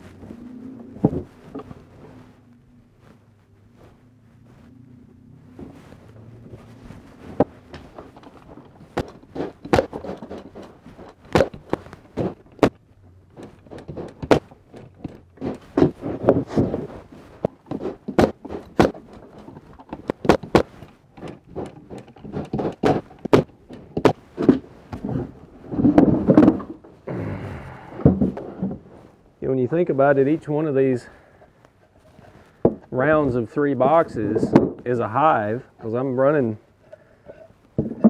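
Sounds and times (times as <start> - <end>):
wooden boxes knocking and clunking: 0.8 - 1.9, 6.4 - 29.0, 32.5 - 33.4, 34.0 - 35.0, 37.3 - 38.0.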